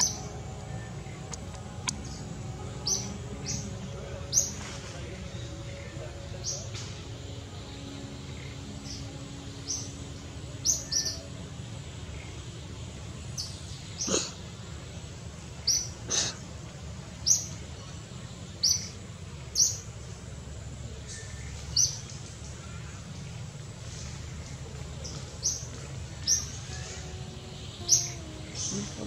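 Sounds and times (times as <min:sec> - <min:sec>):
small bird chirping: 0:00.0 - 0:03.7, 0:24.4 - 0:29.0
low background hum: 0:00.0 - 0:29.0.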